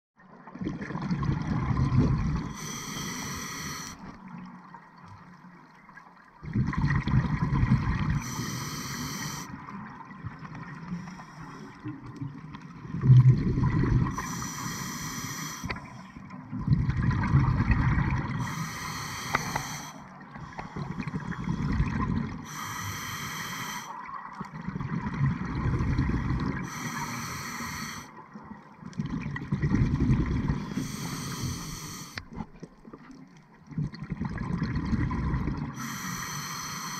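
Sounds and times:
exhaled air bubbling: 0:00.4 - 0:05.4, 0:06.1 - 0:36.9
regulator inhale hiss: 0:02.5 - 0:04.1, 0:08.2 - 0:09.6, 0:14.1 - 0:15.9, 0:18.4 - 0:21.8, 0:22.4 - 0:24.0, 0:26.6 - 0:28.2, 0:30.7 - 0:32.2, 0:35.8 - 0:36.9.

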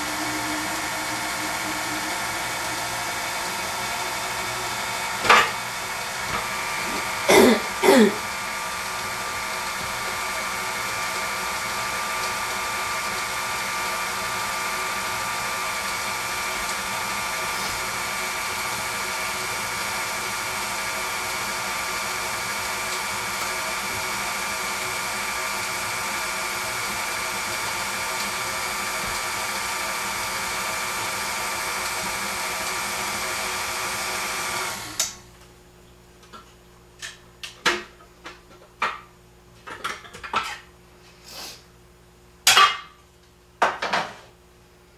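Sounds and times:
stand mixer motor whining: 0:00.0 - 0:35.2.

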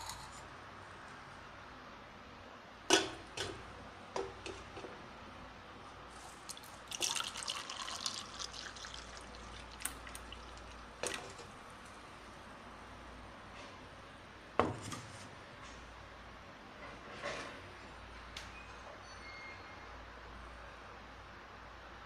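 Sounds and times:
steel vessels clinking: 0:00.0 - 0:00.4
juice pouring into steel tumbler: 0:06.1 - 0:11.5.

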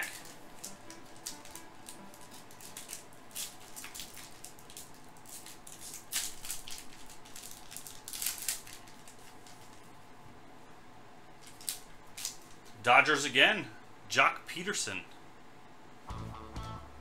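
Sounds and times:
foil wrapper crinkling and tearing: 0:00.0 - 0:10.0, 0:11.4 - 0:12.8.

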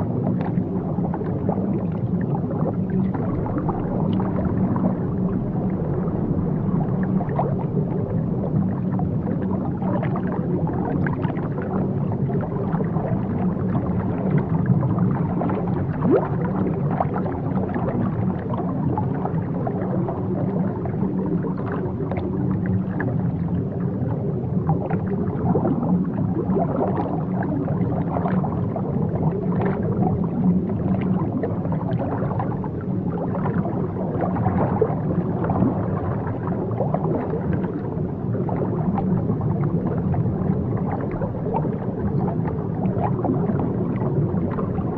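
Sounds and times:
low hum: 0:00.0 - 0:26.3
aquarium bubbles gurgling: 0:00.0 - 0:44.9.

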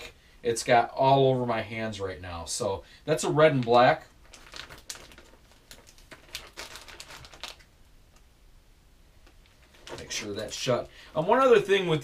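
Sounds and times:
plastic pouch crinkling: 0:03.6 - 0:07.7, 0:09.2 - 0:11.7.

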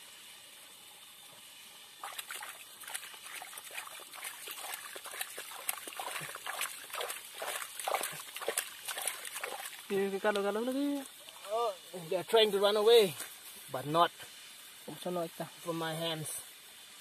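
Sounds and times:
hand splashing in muddy water: 0:02.0 - 0:09.9.

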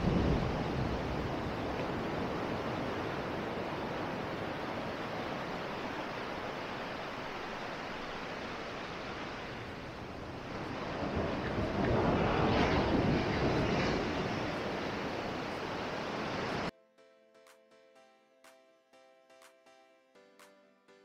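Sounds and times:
surf breaking on a beach: 0:00.0 - 0:16.7.

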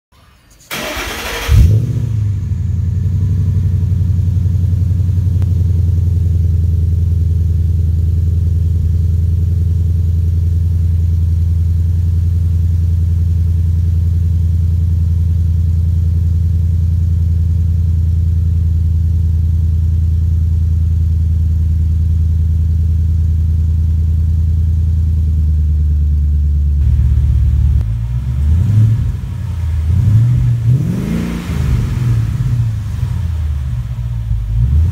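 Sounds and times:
engine catching with loud burst: 0:00.2 - 0:05.7, 0:26.8 - 0:34.9
engine cranking: 0:00.5 - 0:02.8
deep engine idle: 0:00.6 - 0:34.9.

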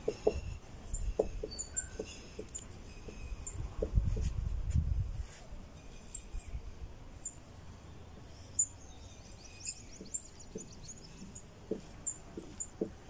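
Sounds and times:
marker tapping on board: 0:00.0 - 0:00.4, 0:11.7 - 0:13.0
marker squeaking on whiteboard: 0:00.0 - 0:04.3, 0:10.0 - 0:13.0.

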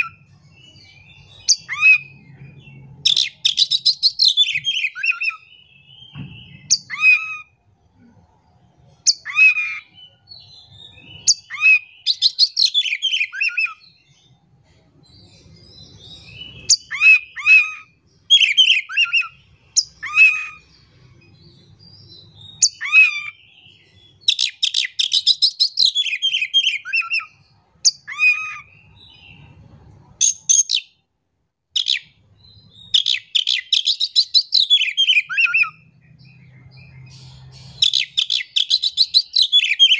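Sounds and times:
magpie-robin singing: 0:00.0 - 0:07.6, 0:08.8 - 0:14.4, 0:15.2 - 0:31.0, 0:31.7 - 0:39.9.

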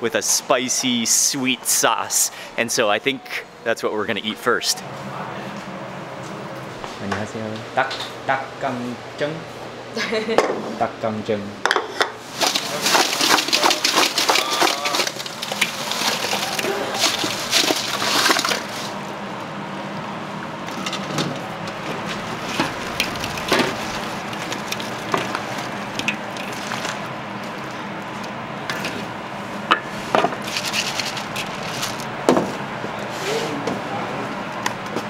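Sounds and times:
clattering in metal bowl: 0:12.4 - 0:18.9.

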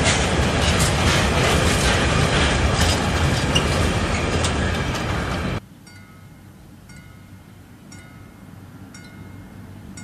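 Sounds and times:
freight train rumbling past: 0:00.0 - 0:10.0
faint high ringing tones: 0:05.8 - 0:10.0.

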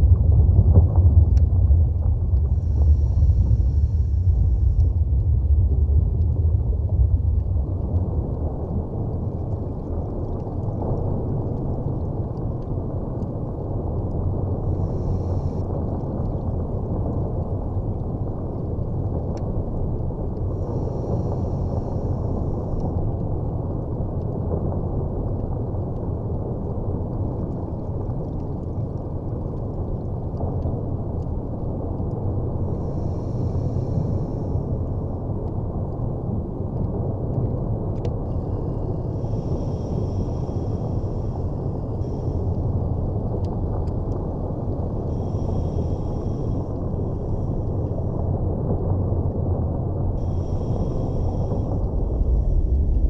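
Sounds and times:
underwater rumble: 0:00.0 - 0:53.0
faint higher hisses: 0:45.1 - 0:47.5, 0:50.2 - 0:52.7.

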